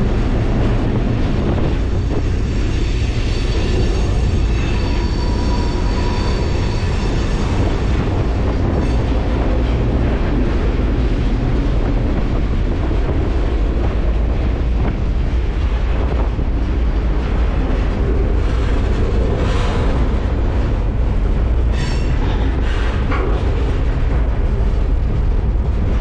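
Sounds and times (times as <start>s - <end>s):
freight train rumbling: 0.0s - 26.0s
wheels clickety-clack: 0.0s - 26.0s.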